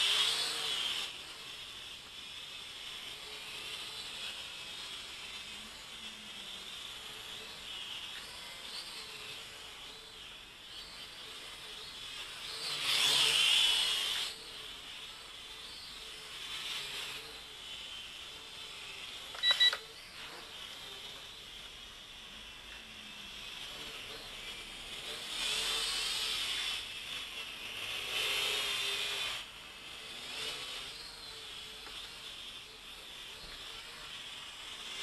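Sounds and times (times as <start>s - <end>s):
short electronic beeps: 19.4s - 19.8s.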